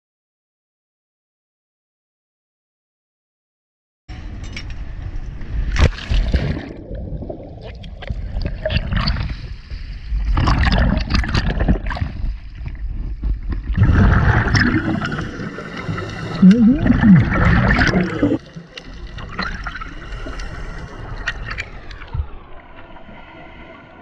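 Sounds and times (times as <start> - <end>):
water sloshing and gurgling: 5.5 - 24.0
scuba exhaust bubbles rushing: 5.9 - 9.5, 10.1 - 23.6.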